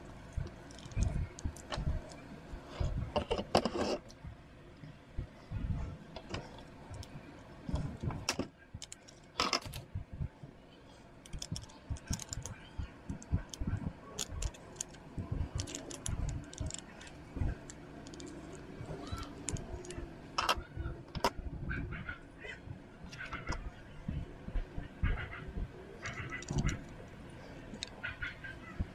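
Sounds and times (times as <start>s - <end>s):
plastic parts clicking and rattling: 0.0s - 4.2s, 6.2s - 9.9s, 11.2s - 21.4s, 26.0s - 27.1s.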